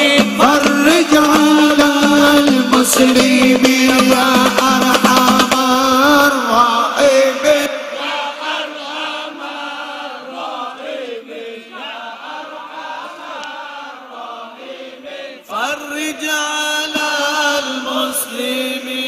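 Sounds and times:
men chanting devotional song: 0.0 - 19.0.

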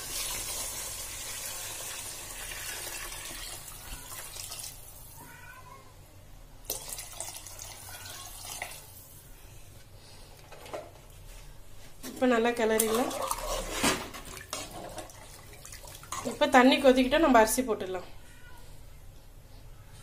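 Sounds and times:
water pouring into sauce: 6.7 - 8.9.

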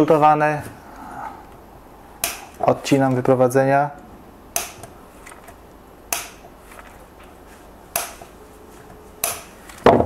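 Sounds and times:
side cutters snipping wire leads: 2.2 - 2.7, 4.6 - 5.5, 6.1 - 6.5, 7.9 - 8.2, 9.2 - 9.8.

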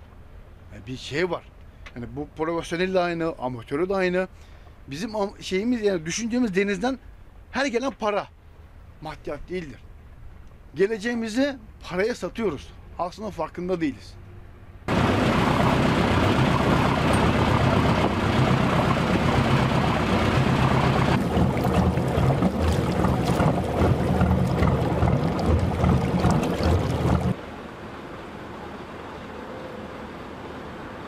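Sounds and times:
boat engine humming: 14.6 - 27.4
wind on microphone: 14.9 - 27.4
rushing water: 14.9 - 27.6.

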